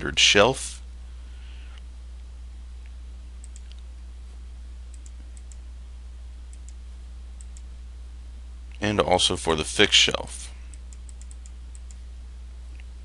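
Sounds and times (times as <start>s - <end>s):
low electrical hum: 0.0s - 13.0s
computer mouse clicks: 3.4s - 3.8s, 4.9s - 5.6s, 6.5s - 6.8s, 7.4s - 7.7s, 10.7s - 12.0s.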